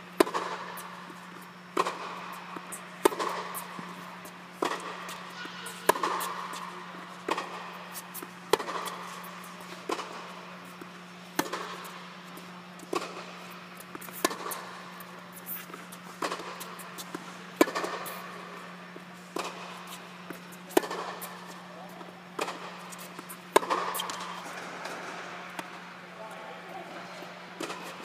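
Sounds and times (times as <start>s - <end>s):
steady low hum: 0.0s - 28.0s
racket striking tennis ball: 0.2s - 21.6s, 22.3s - 25.8s, 27.6s - 28.0s
ball bouncing on hard court: 4.6s - 9.2s, 10.8s - 13.3s, 16.1s - 18.2s, 20.3s - 21.5s, 22.4s - 25.7s.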